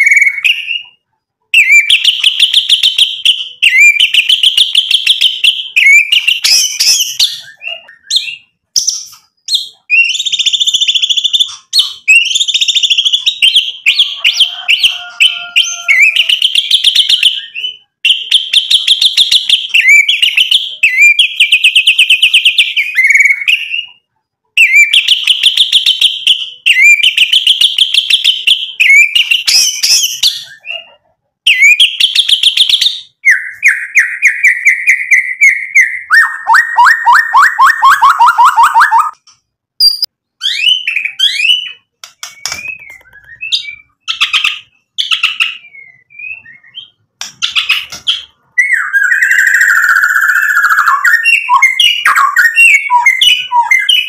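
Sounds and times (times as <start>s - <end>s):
bird singing trills: 1.6s - 24.0s, 39.8s - 54.0s.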